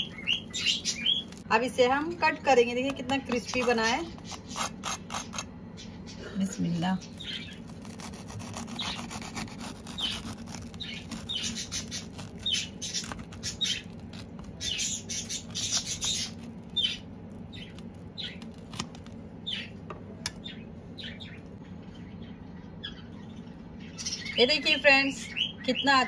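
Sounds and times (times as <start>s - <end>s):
knife crunching through toasted sandwich: 3.3s - 5.5s, 7.0s - 19.2s.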